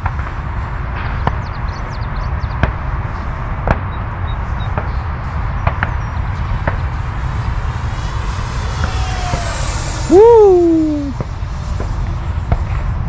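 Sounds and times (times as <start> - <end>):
wind on microphone: 0.0 - 13.0
distant jet model rushing: 2.6 - 13.0.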